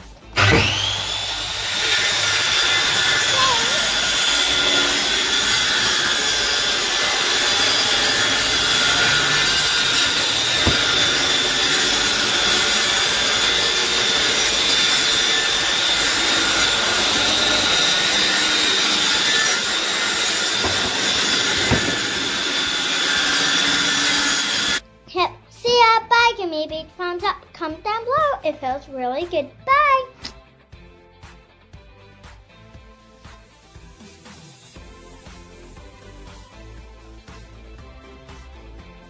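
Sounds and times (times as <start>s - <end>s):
machine noise with high whine: 0.4s - 24.8s.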